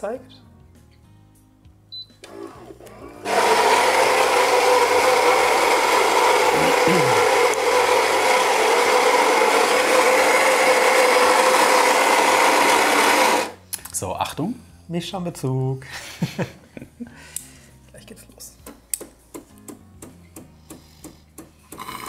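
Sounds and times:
coffee grinder grinding beans: 0:02.3 - 0:13.6, 0:21.8 - 0:22.0.

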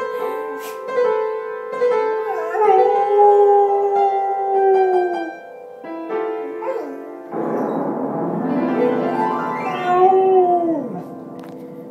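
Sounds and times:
music: 0:00.0 - 0:11.9
dog howling: 0:02.3 - 0:05.4, 0:06.6 - 0:07.0, 0:09.1 - 0:11.1.

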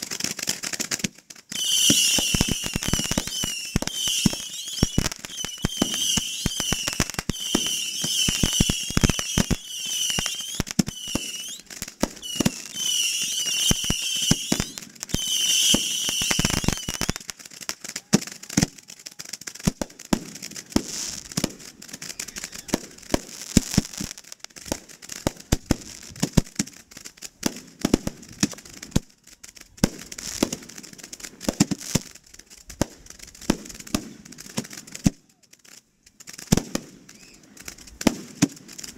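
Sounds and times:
crackling pops: 0:00.0 - 0:38.9
fireworks popping and banging: 0:00.0 - 0:38.9
high warbling firework whistle: 0:01.5 - 0:17.2, 0:37.1 - 0:37.6.

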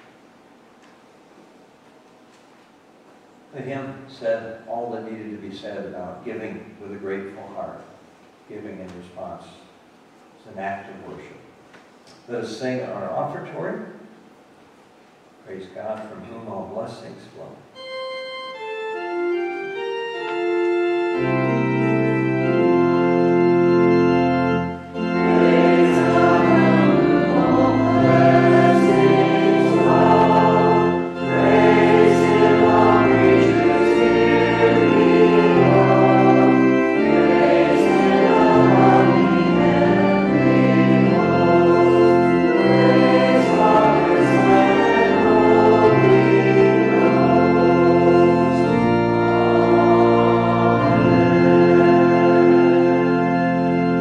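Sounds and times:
church organ playing: 0:17.7 - 0:54.0
congregation singing: 0:18.6 - 0:54.0.

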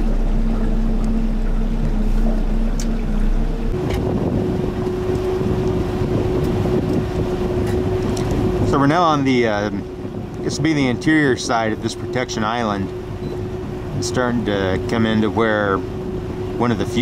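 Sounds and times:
outboard motor running: 0:00.0 - 0:17.0
wind noise on microphone: 0:03.5 - 0:14.9.

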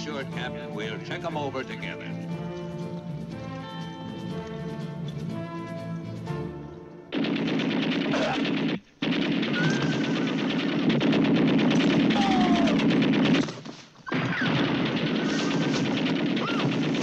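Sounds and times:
machine gun firing in bursts: 0:07.1 - 0:17.0.

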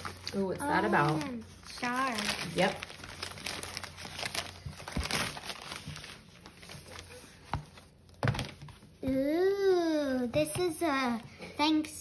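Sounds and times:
packing material crinkling: 0:00.0 - 0:08.8.

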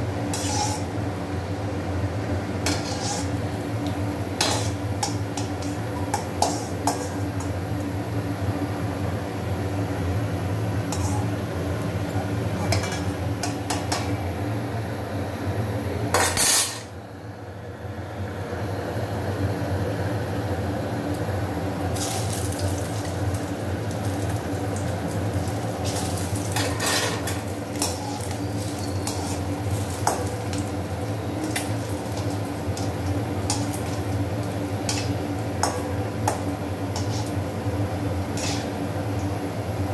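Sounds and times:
oil frying hiss: 0:00.0 - 0:14.6, 0:21.1 - 0:39.9
metal ladle clinking and scraping: 0:00.3 - 0:00.9, 0:02.7 - 0:03.4, 0:04.4 - 0:07.5, 0:25.8 - 0:30.6, 0:38.4 - 0:38.7
steady low hum: 0:22.9 - 0:39.9.

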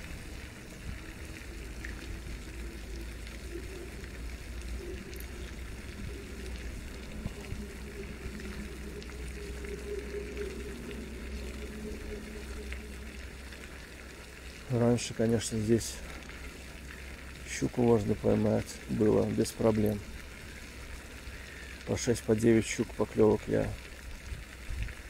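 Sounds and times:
faint low hum: 0:00.0 - 0:23.8
rushing water-like noise: 0:00.0 - 0:25.0.

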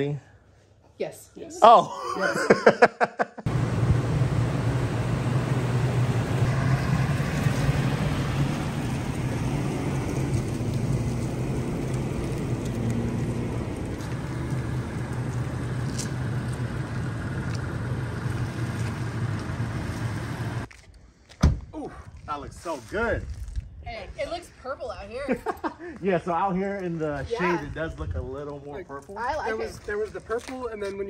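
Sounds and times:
pickup engine running: 0:03.5 - 0:20.7.

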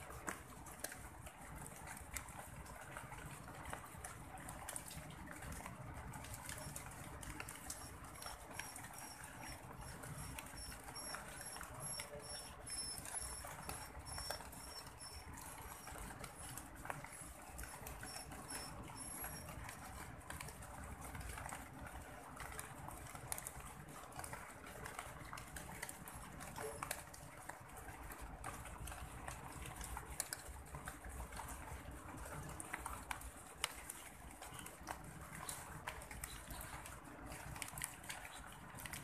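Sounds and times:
bird pecking on pavement: 0:06.3 - 0:20.6.

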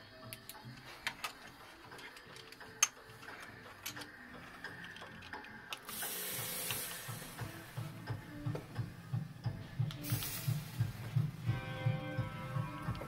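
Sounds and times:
steady hiss: 0:05.8 - 0:12.8.

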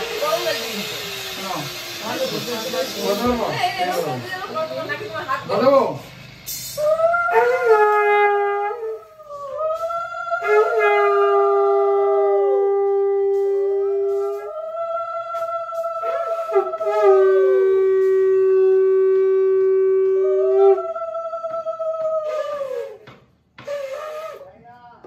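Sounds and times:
conch shells blown: 0:06.5 - 0:21.0, 0:22.0 - 0:24.5.

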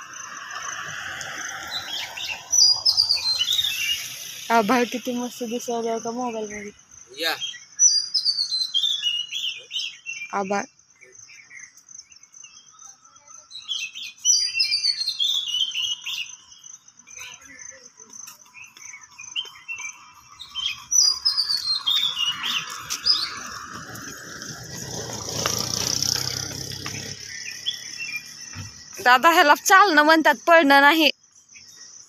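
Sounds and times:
vehicle passing: 0:00.0 - 0:05.6, 0:21.8 - 0:29.0
birds singing: 0:00.0 - 0:32.0
high insect trill: 0:00.0 - 0:32.0.

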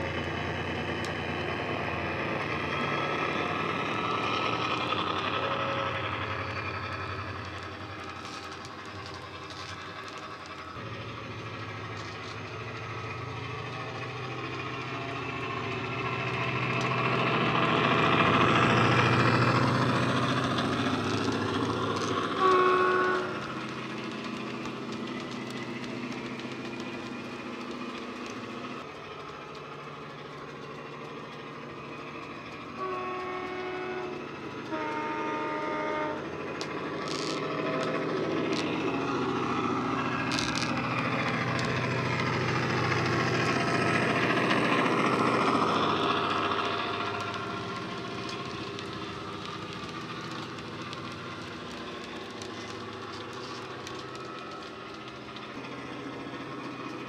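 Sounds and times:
diesel engine running: 0:00.0 - 0:57.0
locomotive horn blast: 0:20.6 - 0:23.7, 0:32.8 - 0:36.4.

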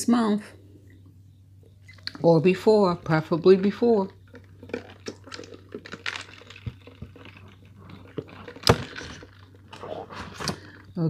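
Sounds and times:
sipping and swallowing through straw: 0:04.3 - 0:10.2.

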